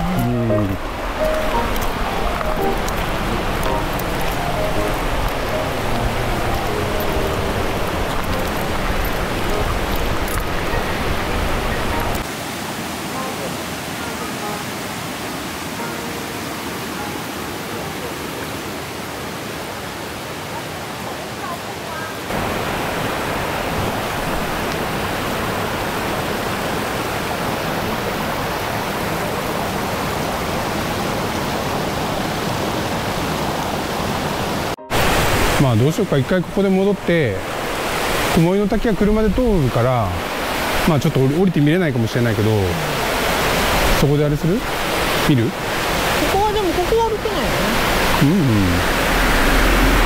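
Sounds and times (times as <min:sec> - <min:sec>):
mountain stream rushing water: 0:00.0 - 0:50.0.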